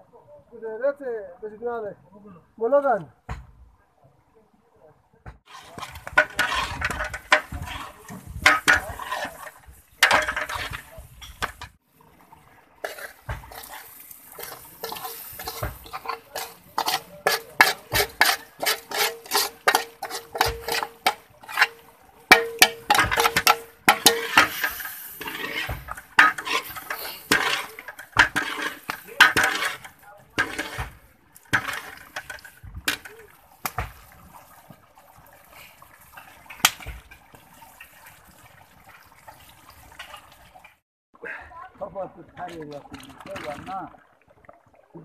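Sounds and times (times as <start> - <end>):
metal ladle clanking and scraping pot: 5.4 - 11.8, 12.8 - 34.5, 36.1 - 38.2.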